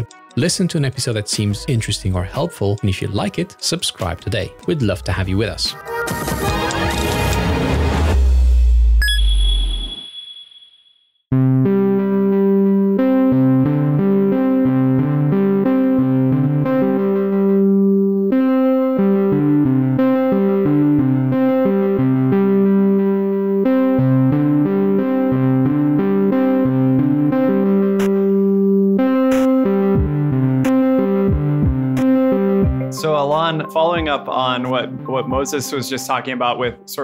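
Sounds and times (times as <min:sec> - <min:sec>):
repeating keyboard notes: 0:12.0 - 0:37.0.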